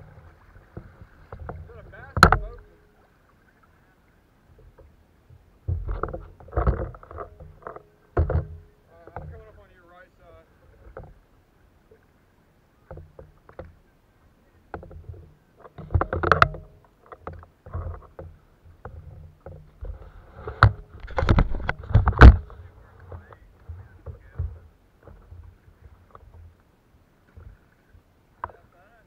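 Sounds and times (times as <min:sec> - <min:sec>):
water sloshing at hull: 0:00.0 - 0:29.0.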